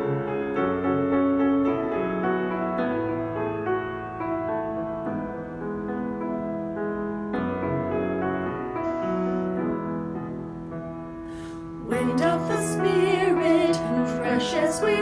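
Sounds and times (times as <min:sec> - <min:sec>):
piano playing slow chords: 0:00.0 - 0:15.0
women singing with vibrato: 0:11.8 - 0:15.0.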